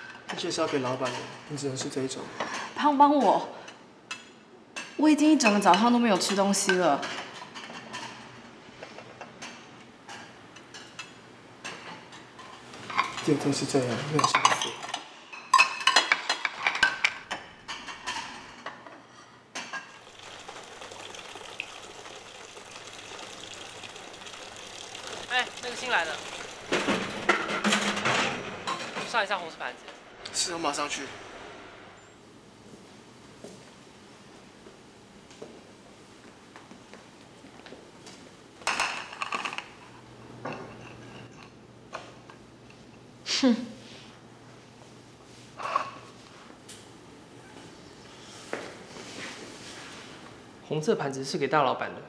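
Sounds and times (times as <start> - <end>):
cutlery and plates clinking: 4.1 - 20.0, 26.7 - 29.2
running water at sink: 19.9 - 28.5
plate clattering on tile floor: 26.7 - 29.2.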